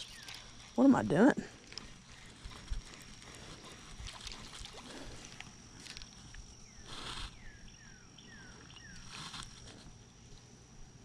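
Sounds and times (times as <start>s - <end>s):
high insect drone: 0.0s - 11.0s
handling rustle: 1.6s - 7.4s, 8.8s - 10.0s
bird chirping: 7.4s - 9.0s.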